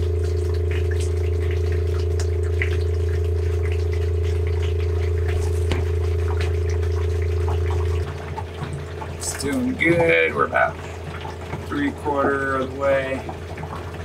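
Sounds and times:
low electric hum: 0.0 - 14.0
water running into a plastic tank: 0.0 - 14.0.

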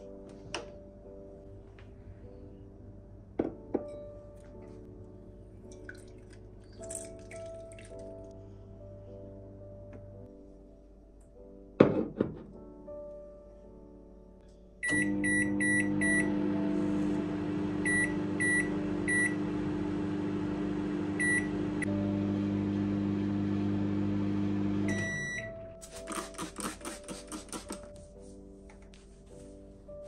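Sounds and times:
microwave oven humming: 14.9 - 25.6
spray bottle squirts: 25.8 - 27.9.

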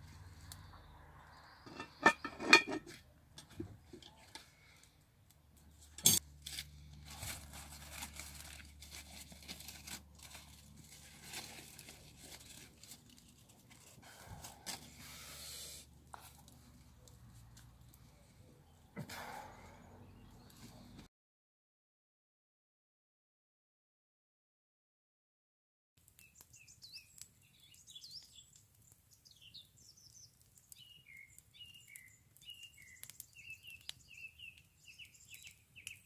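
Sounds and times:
pot lid clanking: 1.7 - 3.6
rustling and small crackles: 2.9 - 15.2, 16.0 - 18.4.

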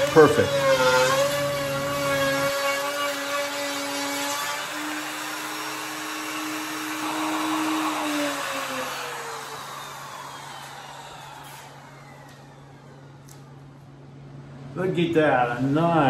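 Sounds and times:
router whining: 0.0 - 14.2.

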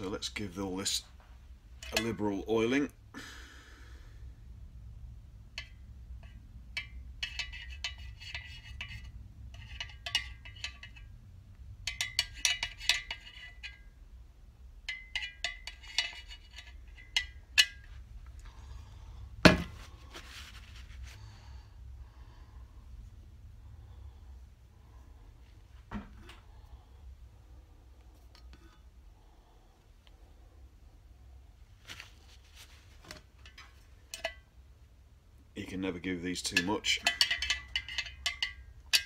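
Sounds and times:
heavy knock: 19.4 - 19.8
oil can pump metallic clicks: 33.4 - 34.4, 36.4 - 39.0.

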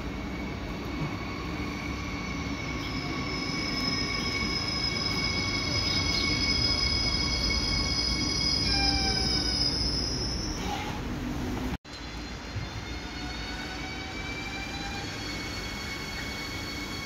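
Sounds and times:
train rumble: 0.0 - 17.0
high squealing tones: 0.2 - 11.0.

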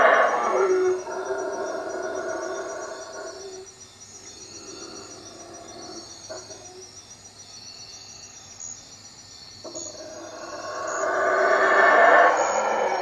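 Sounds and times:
howler monkeys howling: 0.0 - 3.7, 4.4 - 6.8, 9.6 - 13.0
crickets trilling: 0.0 - 13.0.

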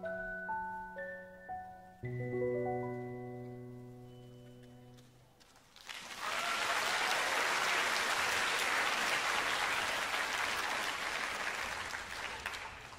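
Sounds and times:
audience applause: 5.7 - 12.9.

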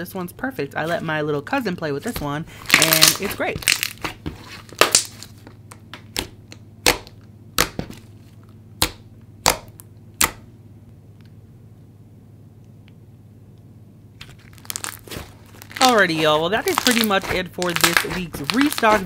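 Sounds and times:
slime popping: 14.3 - 19.0.

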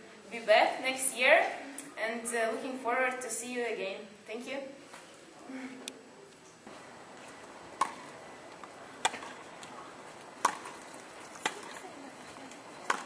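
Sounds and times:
tennis racket hitting ball: 7.5 - 11.9, 12.6 - 13.0.

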